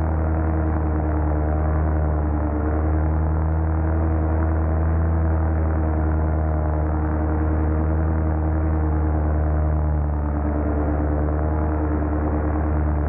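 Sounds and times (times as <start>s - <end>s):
paramotor engine droning: 0.0s - 13.0s.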